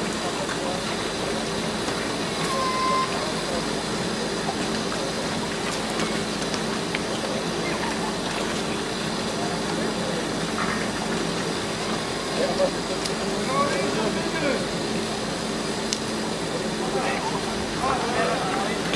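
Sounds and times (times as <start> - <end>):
machinery humming: 0.0 - 18.9
people talking indistinctly: 6.8 - 18.9.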